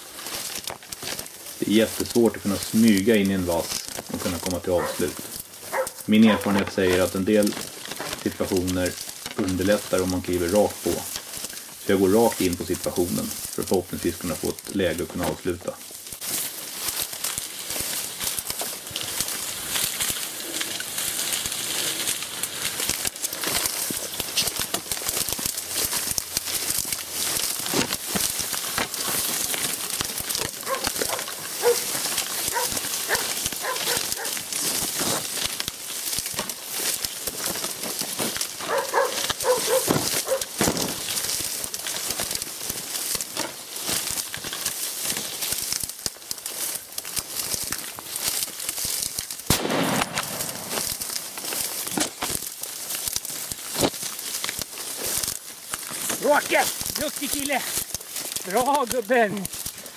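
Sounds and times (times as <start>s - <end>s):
dry reeds rustling: 0.0s - 59.9s
dog barking: 4.8s - 5.0s, 5.7s - 7.0s, 30.6s - 31.9s, 32.5s - 34.4s, 38.7s - 40.5s.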